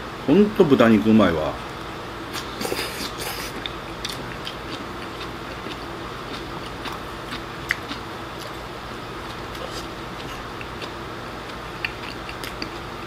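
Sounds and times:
person slurping food: 2.4 - 3.6
chewing: 2.4 - 8.6, 9.3 - 13.0.

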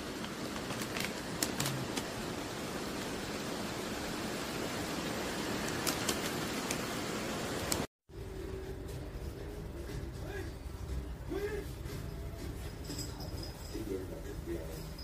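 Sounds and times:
steady background hiss: 0.0 - 15.0
plastic pouch crinkling: 0.2 - 2.2.

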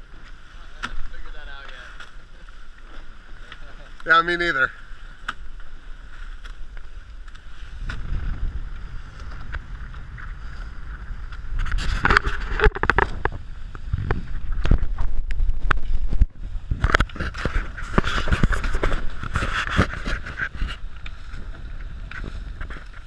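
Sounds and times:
water rushing past hull: 2.2 - 19.6
wind on microphone: 5.6 - 23.0.

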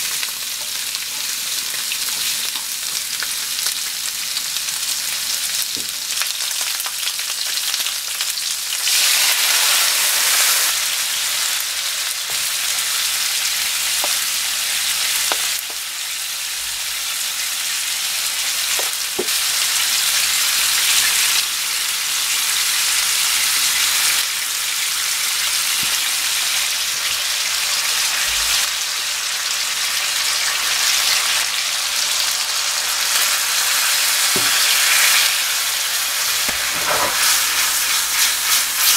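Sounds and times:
meat sizzling in oil: 0.0 - 38.9.

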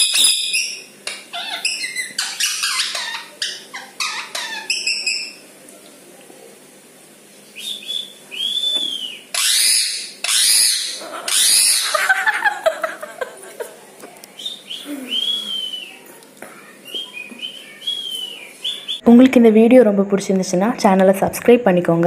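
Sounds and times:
parakeet chatter: 0.0 - 5.4, 9.2 - 12.3, 16.6 - 19.0
parakeet screeching: 0.0 - 5.4, 9.3 - 12.1
whistled bird notes: 7.4 - 11.9, 14.4 - 16.0, 16.8 - 19.0.

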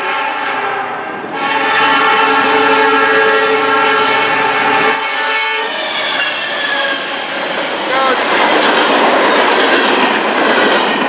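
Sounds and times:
locomotive air horn: 0.0 - 7.2
train rumble: 0.0 - 11.0.

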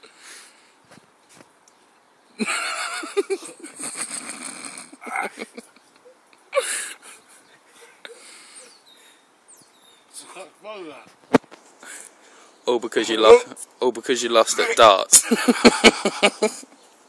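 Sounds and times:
man wheezing and gagging: 3.2 - 8.6.

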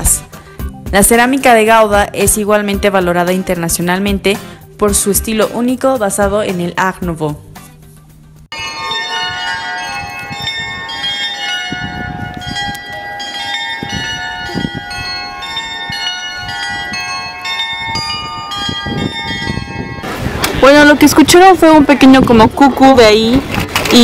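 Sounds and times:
carillon bells playing a tune: 8.5 - 20.1.

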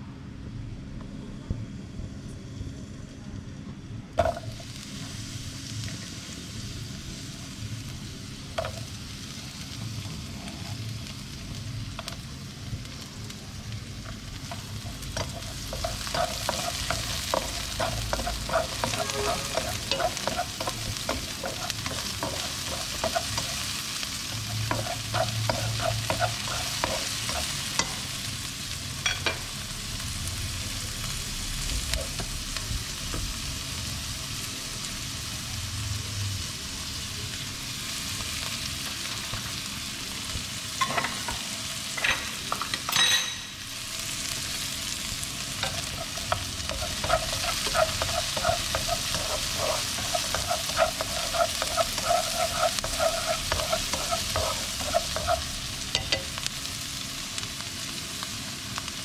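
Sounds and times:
onion sizzling in oil: 4.2 - 59.0
chopsticks tapping and scraping pan: 14.0 - 23.7, 24.3 - 28.1, 45.6 - 56.4.

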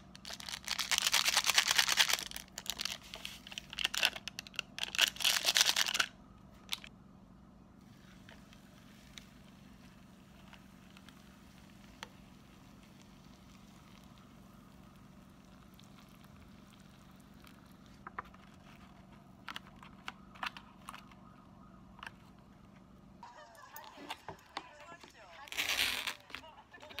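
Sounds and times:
paper lid crinkling: 0.1 - 6.9.

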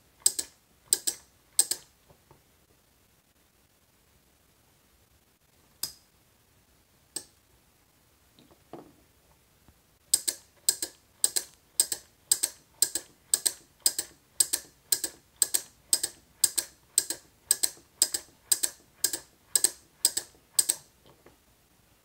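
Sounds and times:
relay clicks: 10.2 - 20.9.

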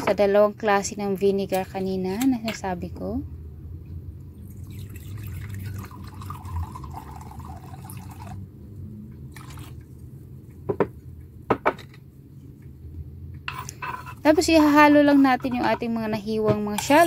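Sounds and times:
liquid pouring into a jug: 4.4 - 8.4, 9.3 - 9.9
liquid pouring into a saucepan: 4.5 - 8.4, 9.3 - 9.8.

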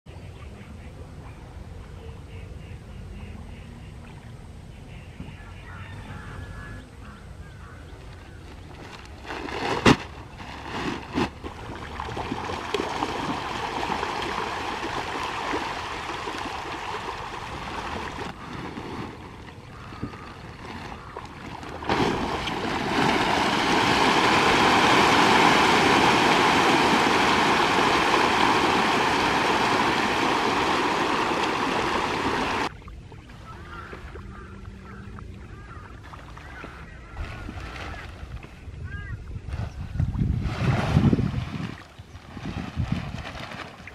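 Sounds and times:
fish splashing in water: 10.8 - 38.3.

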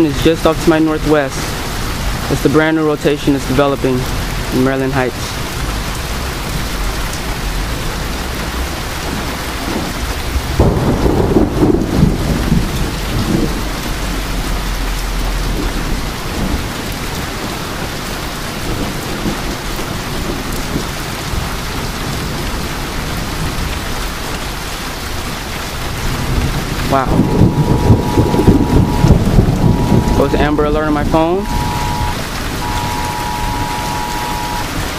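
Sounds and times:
heavy rain falling: 0.0 - 34.9
thunder rumbling: 9.0 - 14.4, 26.0 - 34.9.

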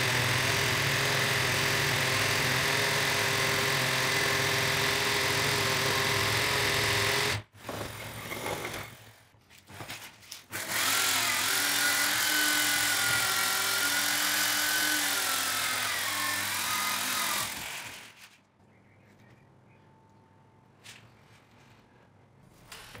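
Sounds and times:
electric drill motor running: 0.0 - 8.9, 10.5 - 18.2.

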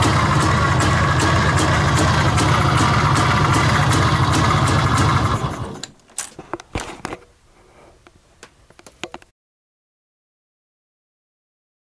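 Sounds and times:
motorcycle engine running: 0.0 - 5.8
sharp clicks and knocks: 8.4 - 9.3.

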